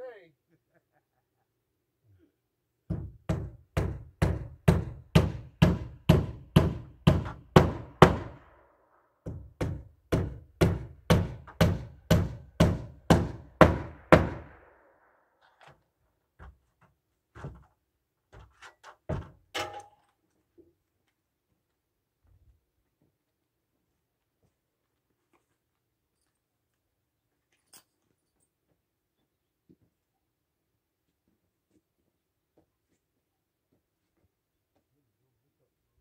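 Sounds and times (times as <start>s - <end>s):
hammer driving nails into wood: 2.9s - 8.5s, 9.2s - 14.6s.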